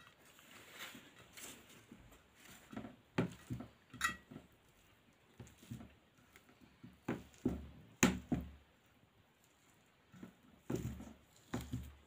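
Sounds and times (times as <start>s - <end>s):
fingers mixing food on steel plate: 1.2s - 12.0s.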